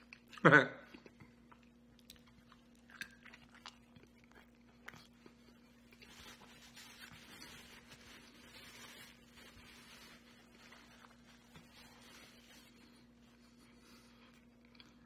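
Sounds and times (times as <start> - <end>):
chewing food with mouth closed: 0.0 - 7.2, 12.8 - 15.0
steady low hum: 0.0 - 15.0.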